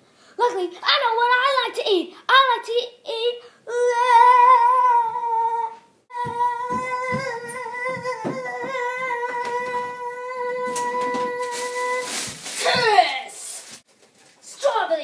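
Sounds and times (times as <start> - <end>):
boy singing a long note: 3.7 - 12.3
soft thumps: 6.1 - 9.8.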